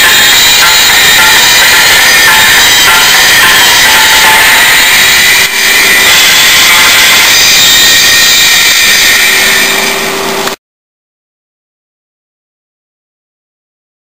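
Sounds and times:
distorted drum-heavy music from speaker: 0:00.0 - 0:10.6.

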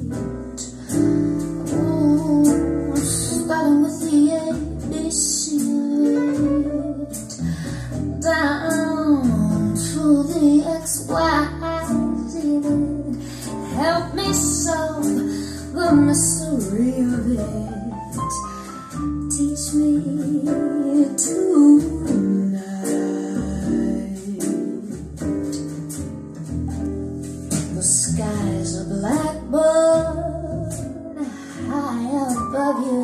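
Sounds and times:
song with high voice and guitar: 0:27.5 - 0:33.0.

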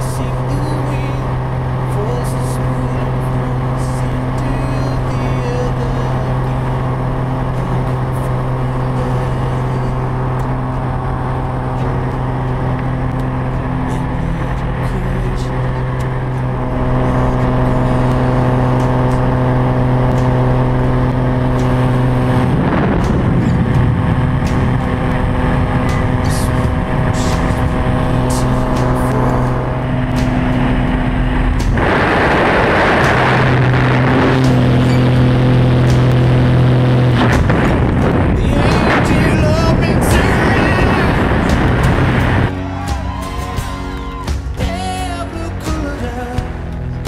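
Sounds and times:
light aircraft engine droning: 0:00.0 - 0:47.0
wind rushing: 0:15.8 - 0:35.4, 0:37.2 - 0:42.5.

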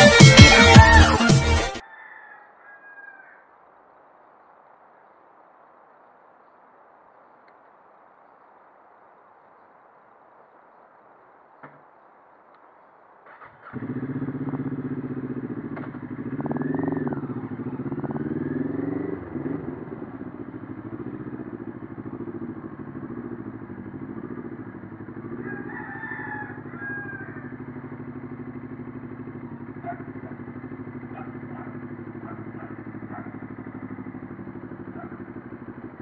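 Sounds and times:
rooster crowing: 0:01.7 - 0:03.6, 0:16.1 - 0:28.4
motorcycle engine revving: 0:13.2 - 0:36.0.

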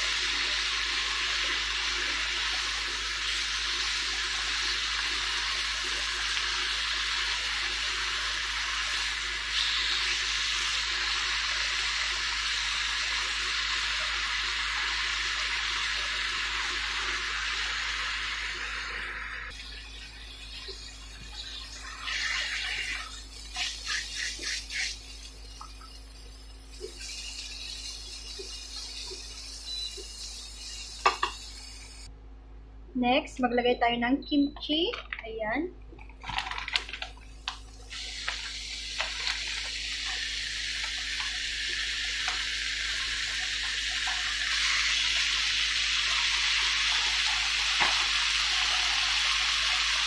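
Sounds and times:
pork sizzling in a frying pan: 0:00.0 - 0:32.1, 0:36.2 - 0:50.0.

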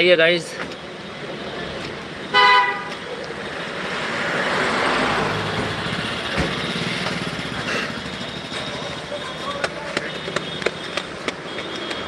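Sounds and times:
traffic noise: 0:00.0 - 0:12.0
vehicle horn toot: 0:02.3 - 0:02.9, 0:08.3 - 0:12.0
motorcycle passing: 0:03.8 - 0:11.4.

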